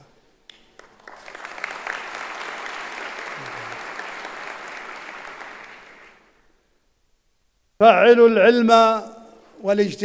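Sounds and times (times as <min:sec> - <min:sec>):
large audience applauding: 0:00.5 - 0:06.4.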